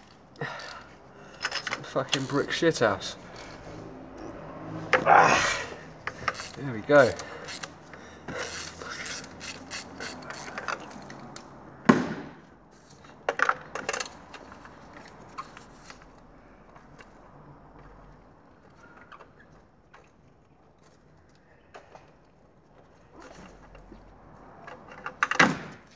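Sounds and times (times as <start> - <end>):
clatter of tool and metal: 0.4 - 3.7, 6.0 - 11.2
ratchet wrench clicking: 1.4 - 4.3, 6.0 - 11.5.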